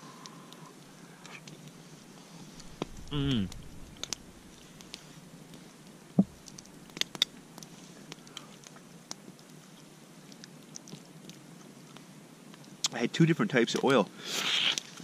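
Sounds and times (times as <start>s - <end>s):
soft mouth sounds: 2.6s - 5.0s.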